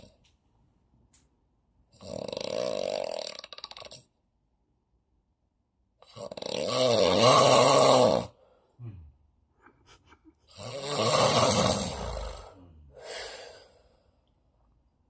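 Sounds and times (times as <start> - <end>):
man snoring loudly: 2.0 - 4.0, 6.0 - 9.0, 10.5 - 13.8.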